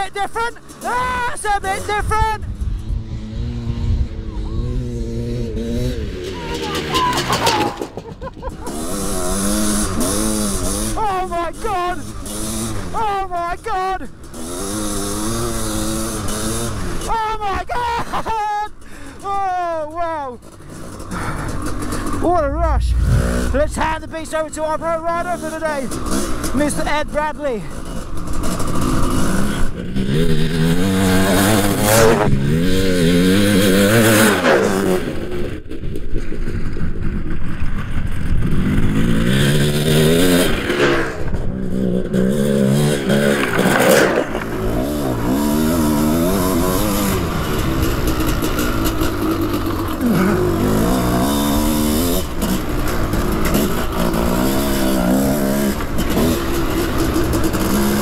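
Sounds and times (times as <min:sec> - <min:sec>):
motocross bike engine revving: 0:00.0 - 0:13.0, 0:14.1 - 0:17.2, 0:20.2 - 0:35.6, 0:37.6 - 0:58.0
wind noise: 0:02.0 - 0:08.7, 0:22.0 - 0:24.3.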